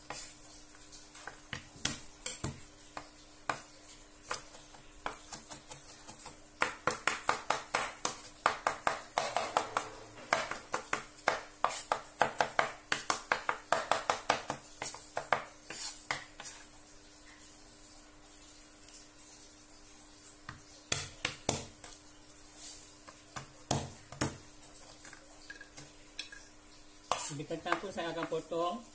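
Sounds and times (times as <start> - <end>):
knife chopping on wooden board: 4.3 - 16.6, 20.5 - 21.8, 23.4 - 24.4.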